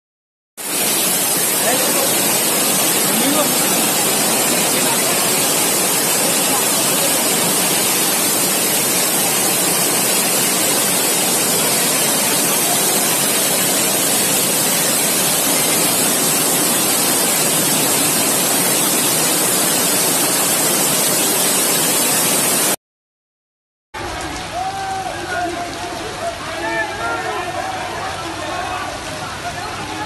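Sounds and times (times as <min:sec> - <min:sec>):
floodwater rushing: 0:00.6 - 0:22.8.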